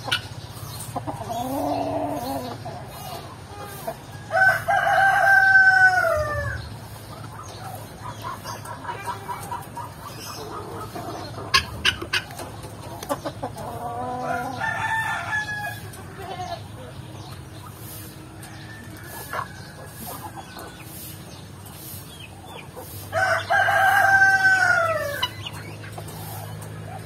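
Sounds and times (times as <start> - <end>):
hens clucking: 0.0 - 27.0
rooster crowing: 4.3 - 6.6, 14.2 - 15.9, 23.1 - 25.3.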